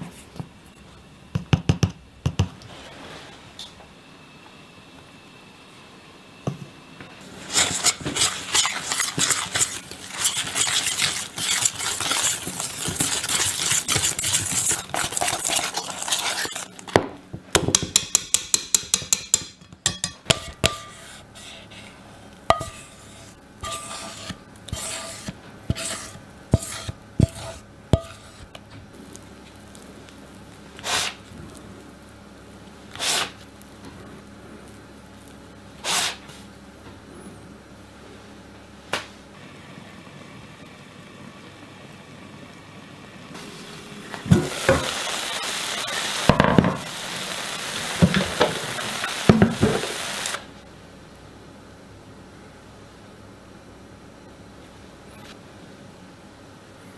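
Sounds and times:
utensil scraping metal bowl: 0:07.3 - 0:16.9, 0:20.3 - 0:28.6.

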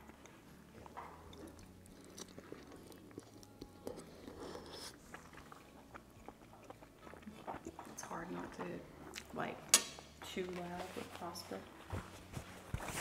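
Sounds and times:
soft chewing: 0:00.0 - 0:13.0.

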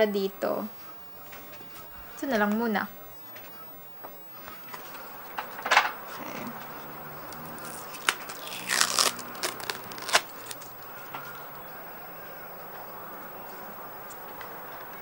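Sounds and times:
blister pack being torn open: 0:07.6 - 0:10.7
plastic crackles and sharp clicks: 0:07.9 - 0:11.2.

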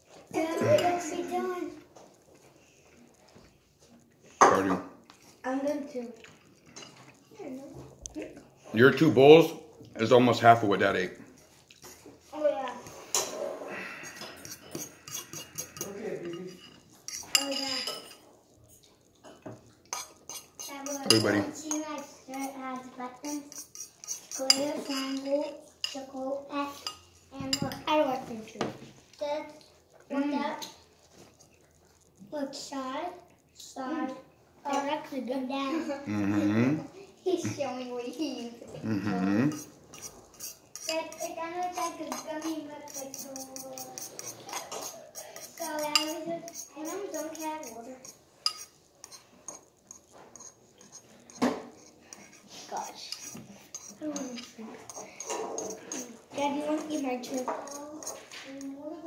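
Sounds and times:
fork scraping china bowl: 0:12.8 - 0:18.2, 0:19.8 - 0:26.1, 0:39.1 - 0:58.8.

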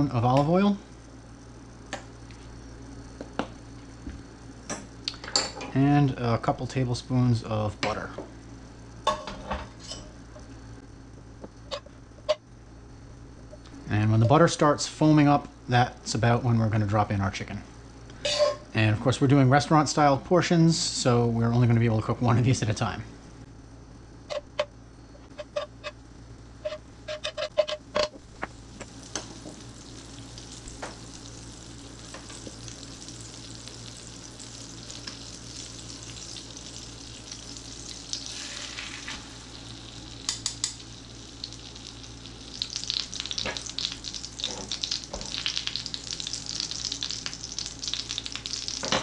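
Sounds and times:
butter sizzling in frying pan: 0:26.6 - 0:49.0.

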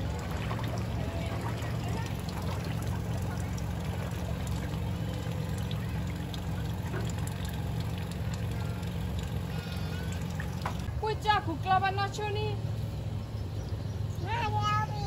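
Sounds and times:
floodwater sloshing and trickling: 0:00.0 - 0:11.0
steady low rumble: 0:00.0 - 0:15.0.

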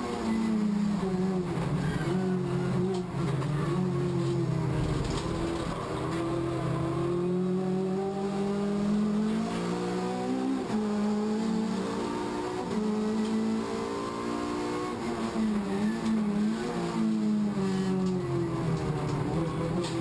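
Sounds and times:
race car engine accelerating: 0:00.0 - 0:20.0.

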